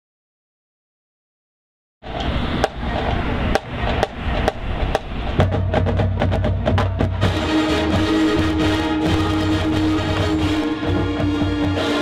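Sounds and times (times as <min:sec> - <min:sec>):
marching band playing: 0:02.1 - 0:12.0
sharp percussion hits: 0:02.1 - 0:12.0
deep low-brass notes: 0:05.3 - 0:12.0.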